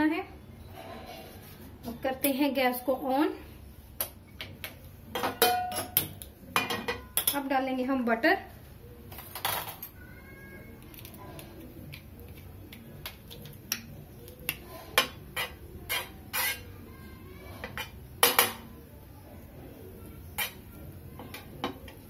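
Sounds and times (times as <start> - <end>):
metal spoon clinking on griddle: 5.1 - 7.5, 20.3 - 22.0.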